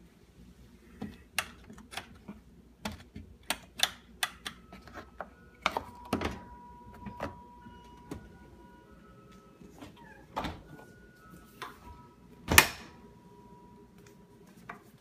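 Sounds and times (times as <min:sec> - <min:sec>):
faint steady high tone: 0:04.5 - 0:14.6.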